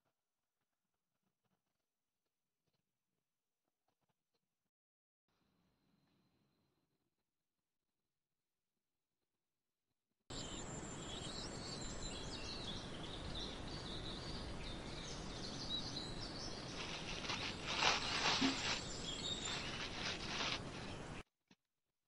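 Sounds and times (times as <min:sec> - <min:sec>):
high chirping calls: 0:11.2 - 0:20.8
plastic bag crinkling: 0:16.7 - 0:20.9.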